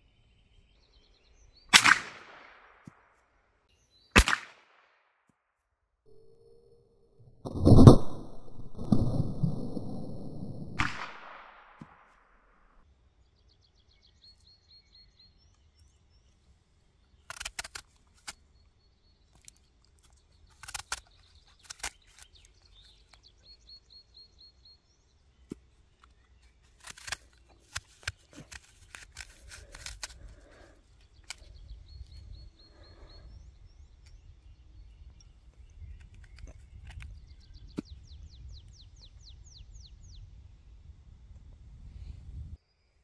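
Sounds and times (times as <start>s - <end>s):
small birds chirping: 13.0s - 40.7s
knife cutting an apple: 26.7s - 30.6s.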